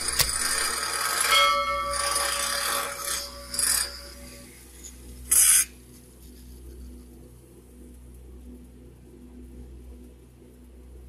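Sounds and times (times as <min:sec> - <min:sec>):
angle grinder grinding steel: 0:00.0 - 0:05.6.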